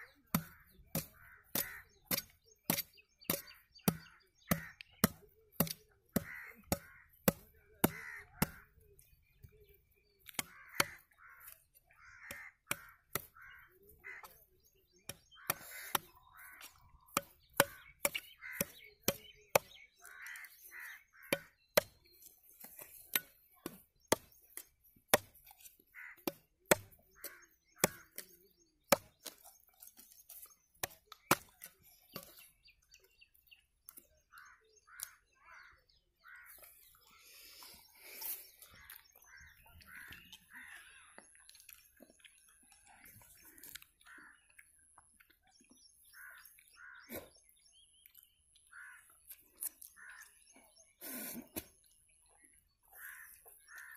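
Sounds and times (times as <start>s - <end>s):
bird calls: 0.0s - 53.9s
machete chopping coconut: 0.3s - 8.6s, 15.1s - 16.1s, 17.1s - 19.8s, 21.3s - 22.0s, 23.1s - 25.5s, 26.2s - 27.0s, 27.8s - 28.3s, 28.9s - 29.4s, 30.8s - 32.4s.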